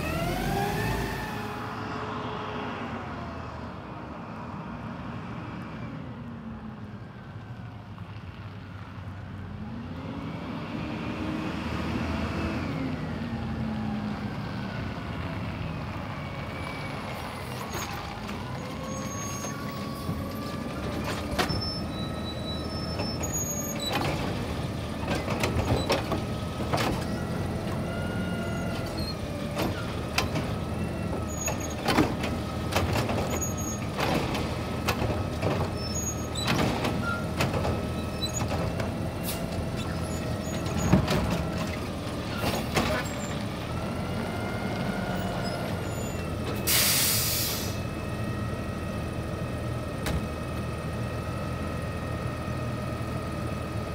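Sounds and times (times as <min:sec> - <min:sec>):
garbage truck engine revving: 0:00.0 - 0:01.7
clanks and bangs of truck arm: 0:31.4 - 0:39.0, 0:40.5 - 0:43.2
air brakes hissing: 0:46.6 - 0:47.9.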